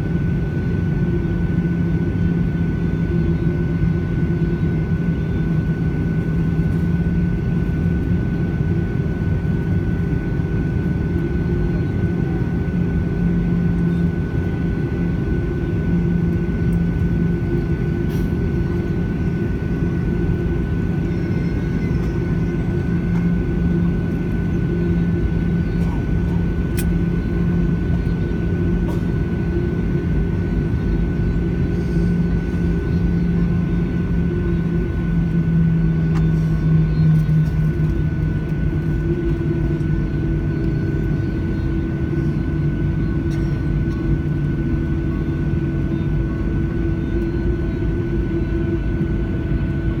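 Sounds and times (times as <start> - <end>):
jet engines humming: 0.0 - 50.0
low cabin rumble: 0.6 - 50.0.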